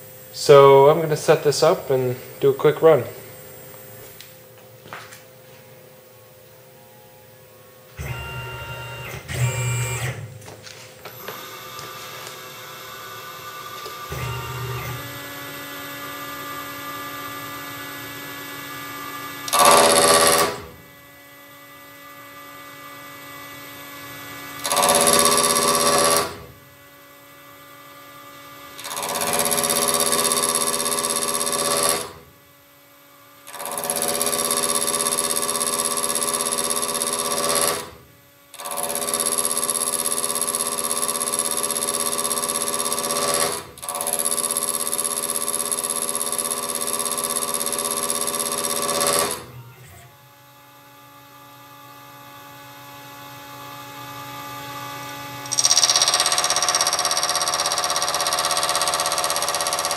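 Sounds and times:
cutter cutting steel: 18.6 - 20.8, 24.4 - 26.5, 28.8 - 32.2, 33.5 - 49.6, 55.4 - 59.9
mill spindle ringing: 55.5 - 59.9.

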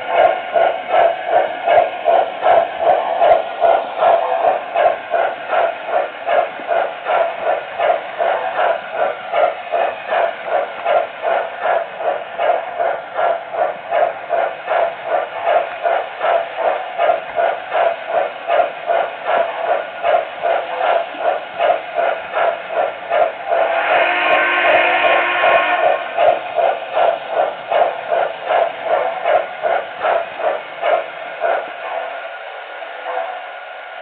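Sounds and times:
model steam locomotive chuffing: 0.0 - 34.0
steam whistle: 23.7 - 25.8.

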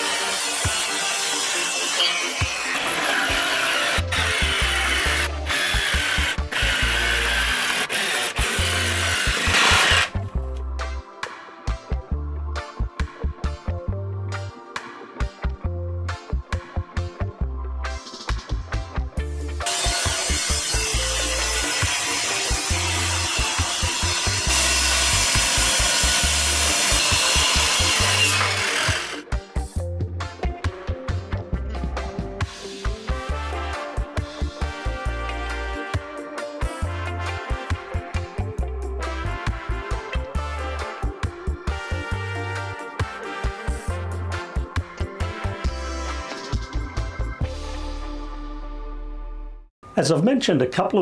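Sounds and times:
jigsaw cutting plywood: 0.0 - 10.2, 19.6 - 29.2.

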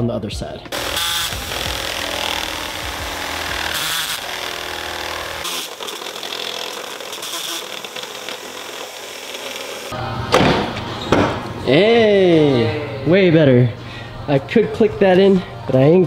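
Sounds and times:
cordless drill cutting metal: 0.7 - 10.0.

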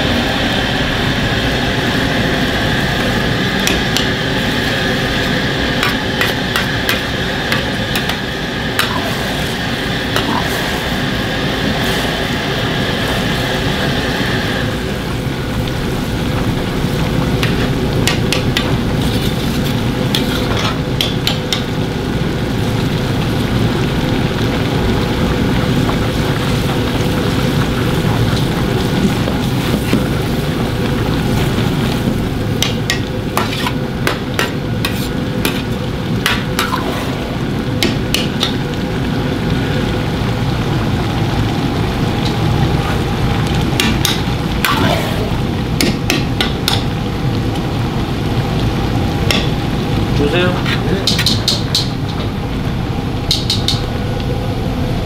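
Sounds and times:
sauce sizzling in a wok: 0.0 - 55.0.

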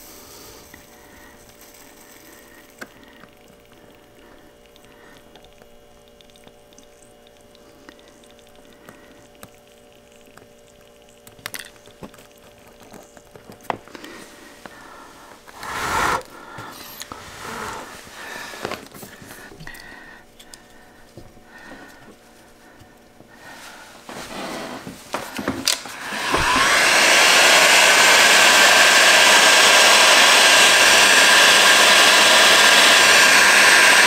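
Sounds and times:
faint steady hum: 0.0 - 26.1
small clicks and rustles: 7.9 - 14.0.

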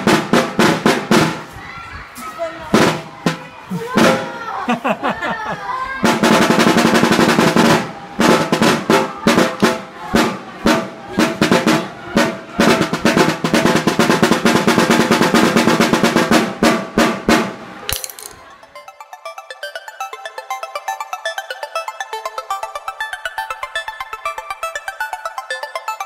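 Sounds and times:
drum rolls and strokes: 6.0 - 18.3
background music: 17.6 - 26.0.

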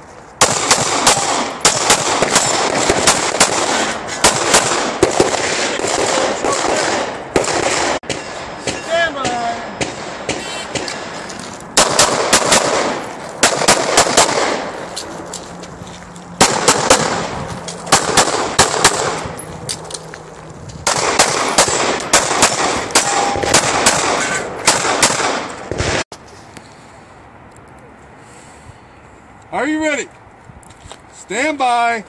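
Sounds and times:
pistol shots with echo: 0.4 - 11.2, 11.8 - 14.7, 16.4 - 19.4, 20.8 - 26.0.

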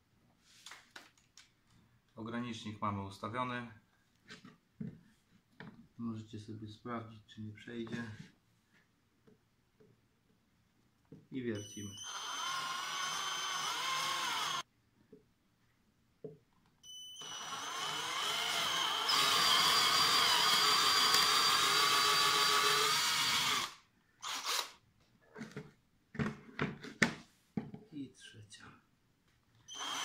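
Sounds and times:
cordless drill boring into wood: 12.0 - 14.6, 17.2 - 24.8, 29.7 - 30.0.

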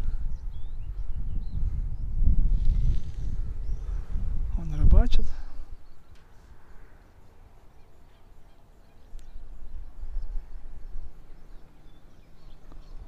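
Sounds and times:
wind rumbling on microphone: 0.0 - 13.0
faint click: 9.1 - 9.3.

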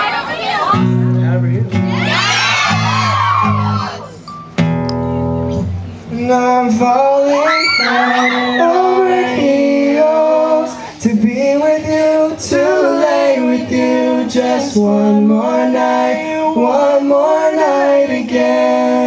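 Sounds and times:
men singing: 6.1 - 19.0.

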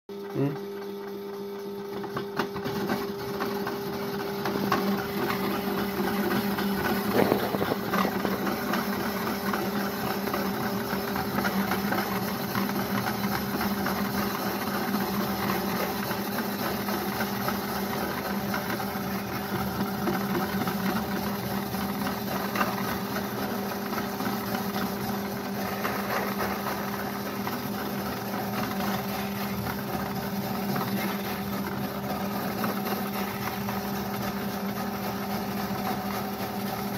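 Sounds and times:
lathe motor hum: 0.9 - 36.9
carrot grating rasp: 5.0 - 9.0.

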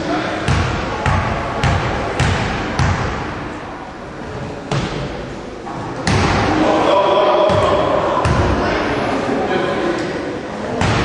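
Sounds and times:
basketball bouncing on gym floor: 0.5 - 3.2, 7.5 - 8.6
people shouting: 6.4 - 8.6.

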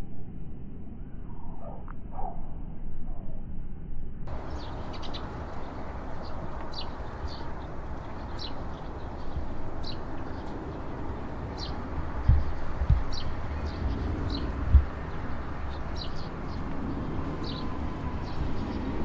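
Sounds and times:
low background hum: 0.0 - 19.0
sparrows chirping: 4.3 - 19.0
low thumps: 11.5 - 15.4.

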